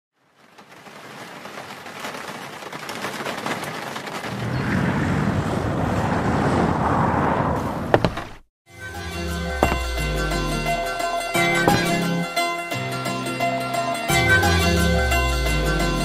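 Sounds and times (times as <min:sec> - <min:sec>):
rain: 0:00.1 - 0:06.8.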